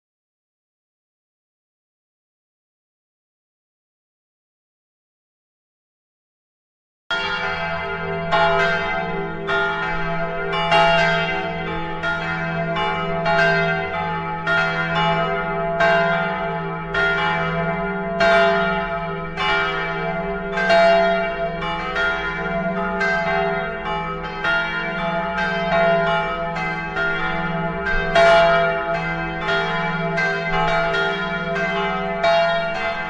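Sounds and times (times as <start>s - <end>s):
church bells pealing: 7.1s - 33.0s.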